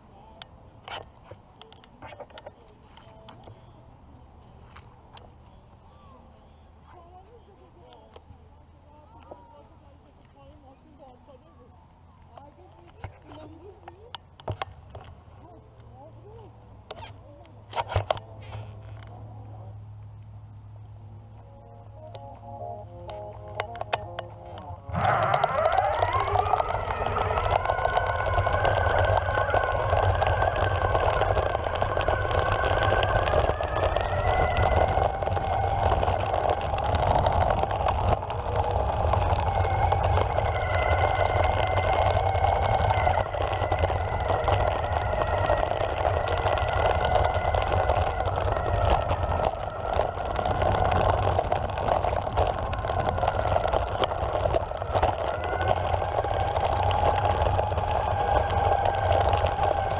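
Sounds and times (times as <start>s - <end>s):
low rumble of wheels: 0.0s - 59.9s
wind: 0.0s - 59.9s
electric skateboard motors whining: 21.9s - 59.9s.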